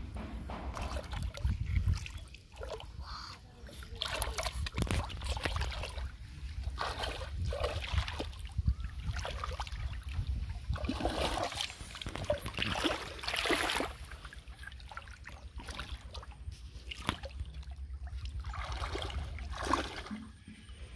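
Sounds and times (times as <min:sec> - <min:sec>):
steady low rumble: 0:00.0 - 0:03.7
muddy water splashing and trickling: 0:00.0 - 0:20.9.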